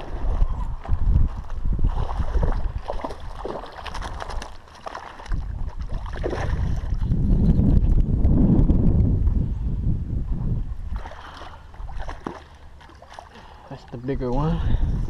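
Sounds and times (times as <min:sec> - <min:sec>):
wind rumbling on microphone: 0:00.0 - 0:15.0
water splashing from fighting fish: 0:01.8 - 0:07.0, 0:10.9 - 0:13.7.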